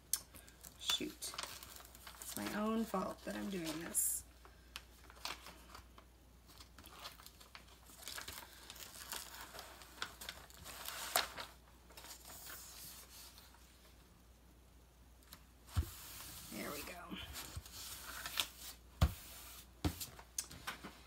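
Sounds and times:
plastic film peeling and crinkling: 0.4s - 13.6s, 15.3s - 18.9s.

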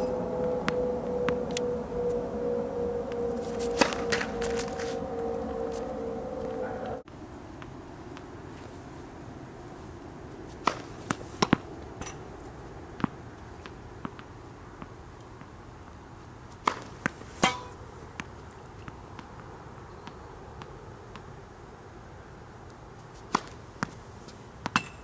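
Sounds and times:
low hum: 0.0s - 8.4s
racket striking tennis ball: 3.1s - 5.0s, 10.5s - 12.3s, 16.6s - 18.3s, 23.2s - 24.0s, 24.6s - 25.0s
tennis ball bouncing: 3.1s - 5.0s, 10.5s - 12.4s, 13.0s - 15.5s, 16.5s - 21.3s, 23.2s - 24.0s, 24.6s - 25.0s.

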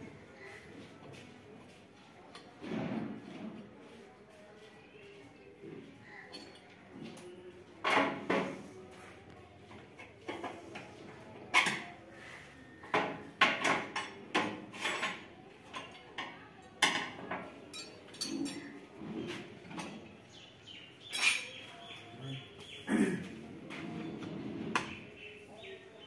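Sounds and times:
hand tools clinking on metal: 17.7s - 18.8s, 21.1s - 21.6s.

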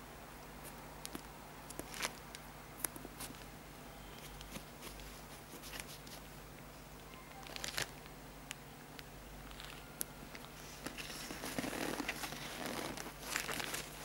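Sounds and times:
faint steady hum: 0.0s - 14.0s
crackly rustling: 0.6s - 3.6s, 4.2s - 14.0s.

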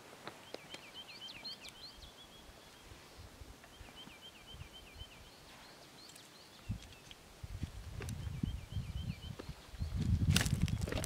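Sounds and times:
soft rustles in stony ground: 0.0s - 4.4s, 5.3s - 11.0s
songbird singing high notes: 0.4s - 6.8s, 8.3s - 10.0s.

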